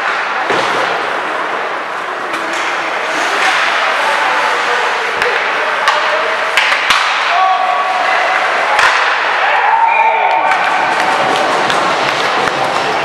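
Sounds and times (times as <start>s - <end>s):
skates on ice: 0.0s - 9.6s, 10.3s - 13.0s
voices in rink: 0.0s - 13.0s
hockey stick or puck knocks: 5.2s - 7.3s.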